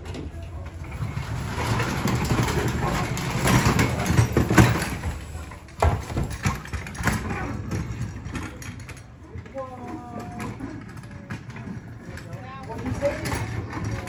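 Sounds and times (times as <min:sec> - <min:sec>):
cart casters rumbling and rattling: 0:00.0 - 0:14.0.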